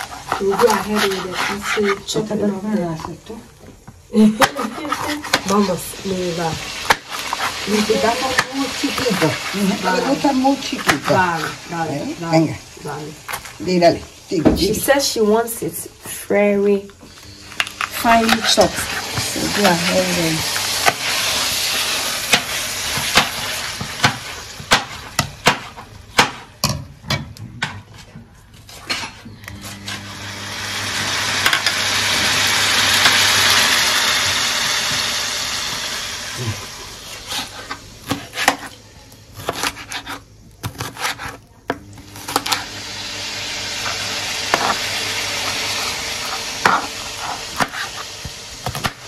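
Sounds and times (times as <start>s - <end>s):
chicken sizzling in oil: 4.1s - 15.9s, 17.1s - 26.1s, 29.8s - 38.5s, 42.0s - 49.0s
knife chopping on plastic board: 22.3s - 27.2s, 37.3s - 38.7s, 39.4s - 42.6s.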